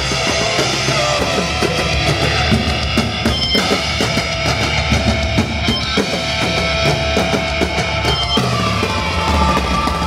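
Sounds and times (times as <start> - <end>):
drum kit played hard: 0.0 - 10.0
guitar-driven rock music: 0.0 - 10.0.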